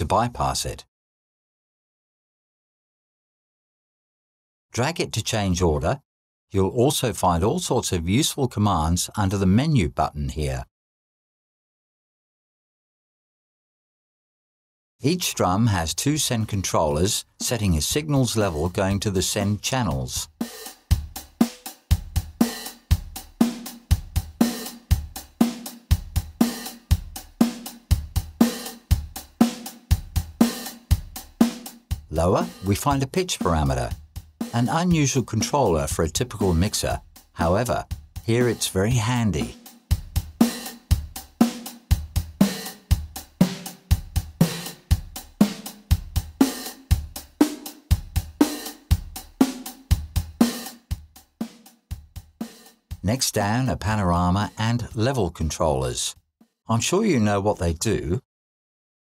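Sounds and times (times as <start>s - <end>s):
drum kit beat: 16.2s - 54.7s
snare drum ring changing pitch: 20.3s - 35.6s, 36.3s - 51.8s.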